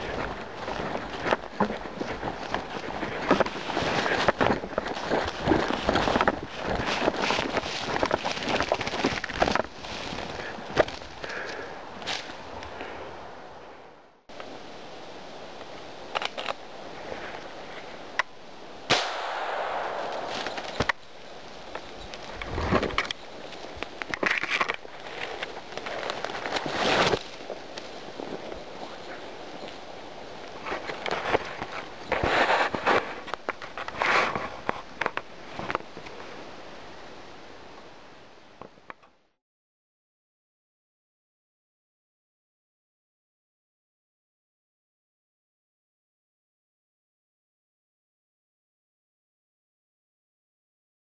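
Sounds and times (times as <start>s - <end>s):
camera handling rustle: 0.0s - 11.3s, 16.1s - 16.6s, 20.0s - 21.0s, 21.7s - 27.9s
bird flapping through branches: 0.0s - 12.5s, 18.9s - 35.8s
faint steady hiss: 0.0s - 39.4s
rifle shot: 18.9s - 20.9s.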